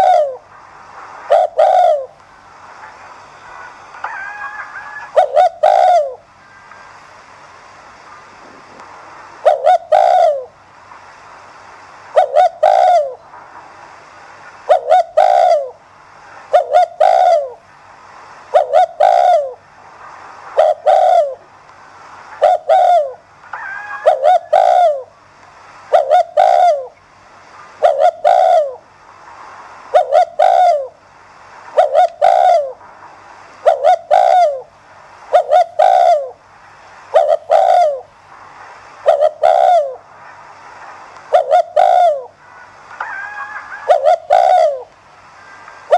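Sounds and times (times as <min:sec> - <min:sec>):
dove cooing: 0:00.0 - 0:00.5, 0:01.3 - 0:02.2, 0:03.6 - 0:06.6, 0:09.4 - 0:10.6, 0:12.1 - 0:13.2, 0:14.6 - 0:15.8, 0:16.5 - 0:17.6, 0:18.5 - 0:19.6, 0:20.6 - 0:21.5, 0:22.4 - 0:25.2, 0:25.9 - 0:27.0, 0:27.8 - 0:28.8, 0:29.9 - 0:31.0, 0:31.7 - 0:32.8, 0:33.6 - 0:34.7, 0:35.3 - 0:36.4, 0:37.1 - 0:38.1, 0:39.0 - 0:40.0, 0:41.3 - 0:42.4, 0:43.0 - 0:44.9.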